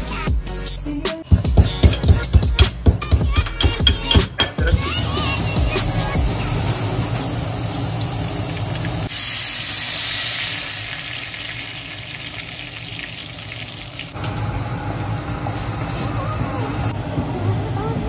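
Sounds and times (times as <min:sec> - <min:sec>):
hot oil sizzling: 0:03.9 - 0:16.2.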